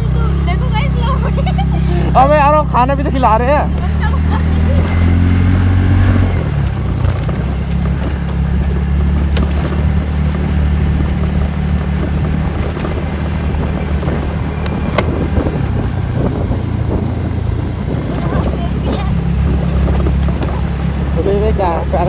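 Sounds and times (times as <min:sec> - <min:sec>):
scooter engine running: 0:00.0 - 0:22.0
wind and tyre rushing: 0:00.0 - 0:22.0.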